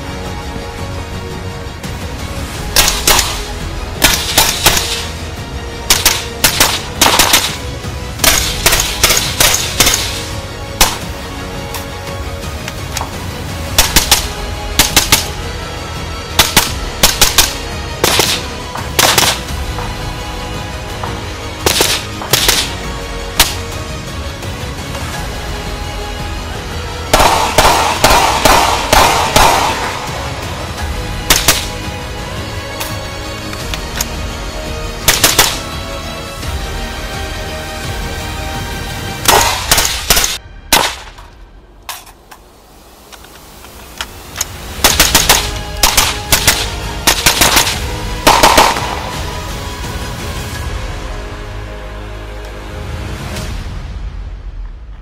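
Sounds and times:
background music: 0.0 - 55.0
suppressed rifle shots: 4.0 - 5.1, 5.9 - 7.6, 8.2 - 10.2, 13.8 - 15.3, 16.4 - 19.5, 31.3 - 31.7, 44.8 - 49.0.

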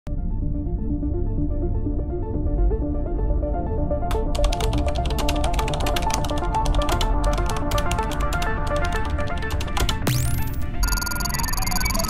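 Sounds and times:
electronic music: 4.1 - 12.0.

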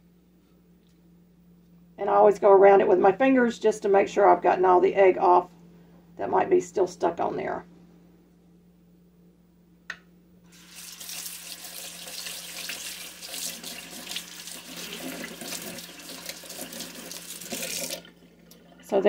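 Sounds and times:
faucet running into a sink: 10.5 - 19.0.

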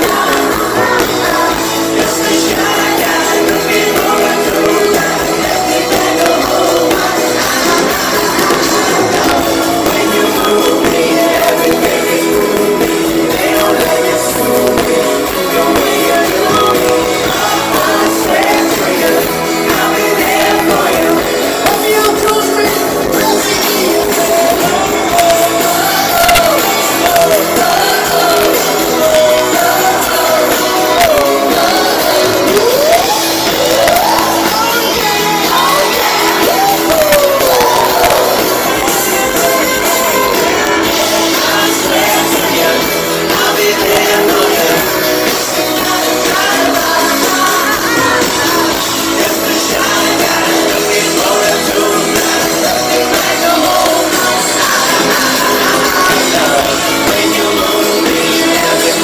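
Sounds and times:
crowd shouting: 0.0 - 59.0
live rock band playing: 0.0 - 59.0
male lead singer: 0.0 - 59.0.

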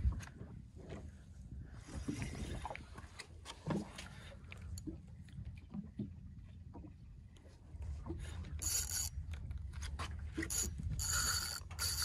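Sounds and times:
fishing reel gear whirring: 8.5 - 9.4, 10.4 - 12.0.

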